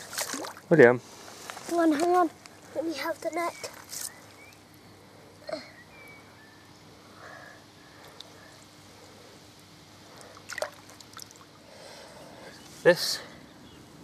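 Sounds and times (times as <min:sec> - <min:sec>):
fish splashing: 0:00.0 - 0:00.7, 0:10.1 - 0:11.6
faint water lapping: 0:00.0 - 0:00.9, 0:06.8 - 0:12.6.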